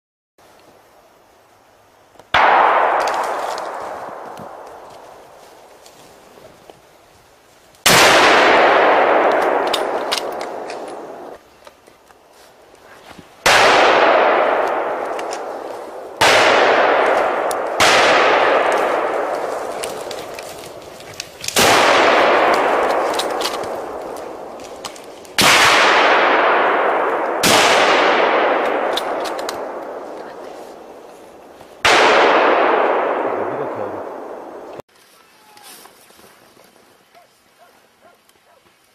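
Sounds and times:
rifle shots echoing: 0:02.3 - 0:05.8, 0:07.8 - 0:11.4, 0:13.4 - 0:34.8.

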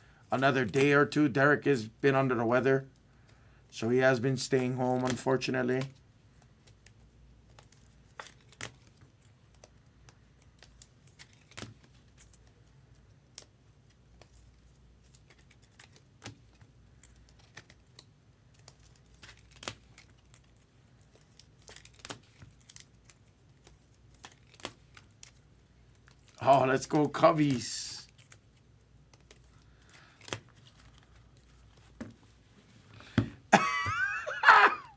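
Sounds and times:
wrappers crinkling: 0:13.4 - 0:32.4.

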